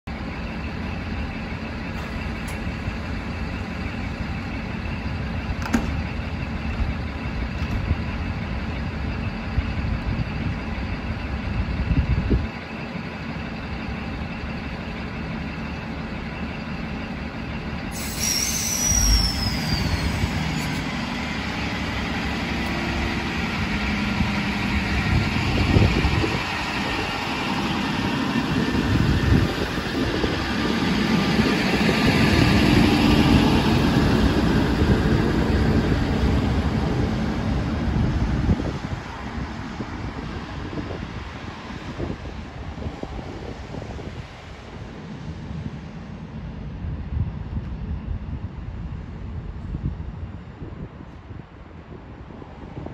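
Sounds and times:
train pulling away: 0.1 - 45.6
train equipment hum: 0.1 - 52.9
short falling whistle: 17.9 - 20.8
air hiss: 17.9 - 20.9.

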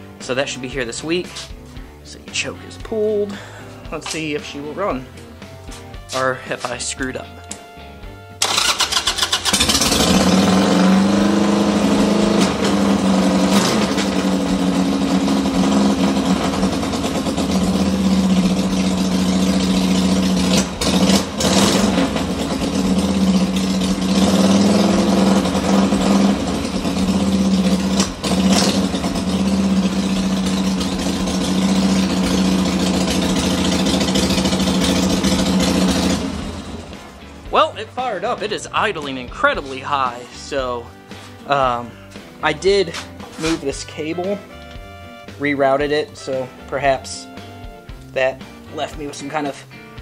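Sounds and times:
motorcycle engine high idle: 8.4 - 37.2.

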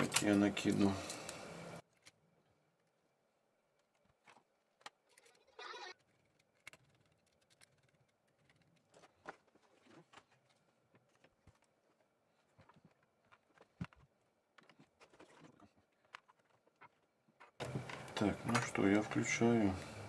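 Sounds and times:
plastic parts clicking and knocking: 3.7 - 18.9.

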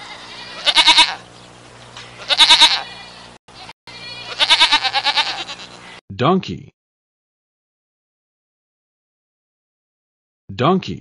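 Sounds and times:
goat bleating: 0.0 - 1.3, 2.2 - 6.0.

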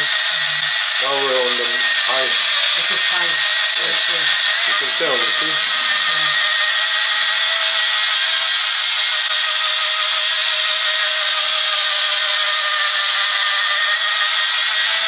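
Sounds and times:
electric scrubber motor whine: 0.0 - 15.0.

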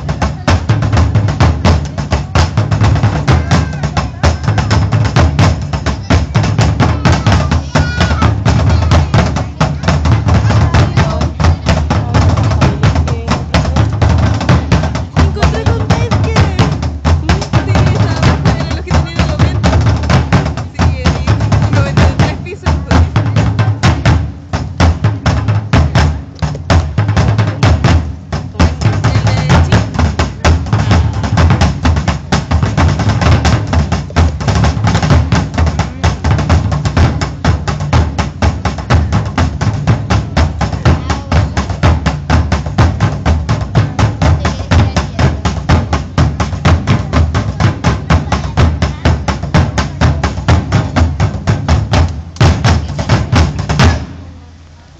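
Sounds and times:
taiko drums playing fast rhythm: 0.0 - 54.4.

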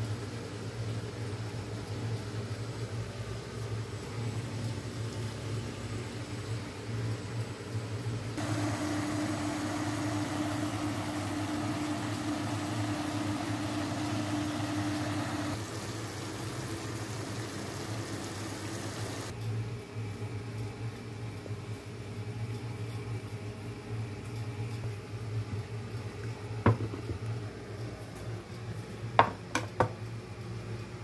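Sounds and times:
low machine hum: 0.0 - 19.4
whirring hiss with held tone: 0.0 - 19.4.

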